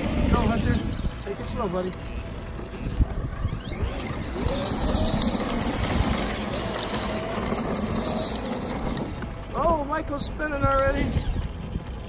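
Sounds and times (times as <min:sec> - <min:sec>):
electric motor whine: 0:00.0 - 0:12.0
wheels rolling on asphalt: 0:00.0 - 0:12.0.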